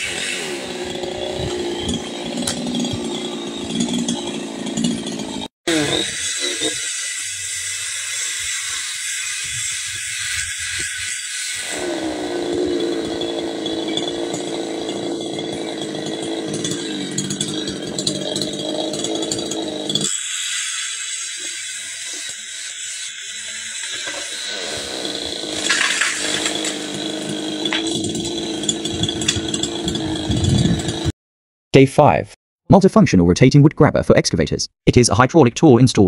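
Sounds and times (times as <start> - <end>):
chainsaw cutting wood: 0.0 - 31.1.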